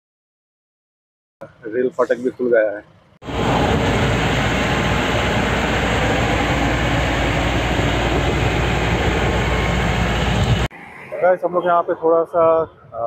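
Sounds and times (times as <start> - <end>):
wind and road noise: 1.4 - 13.0
low engine drone: 3.2 - 10.7.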